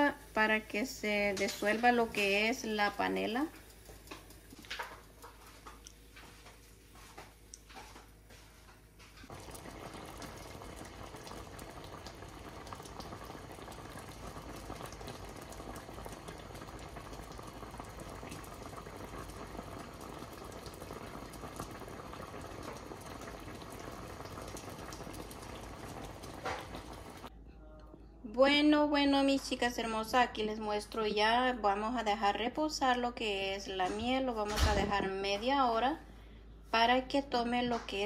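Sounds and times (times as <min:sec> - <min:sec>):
syrup boiling and bubbling: 0:00.0 - 0:08.1, 0:09.3 - 0:27.3.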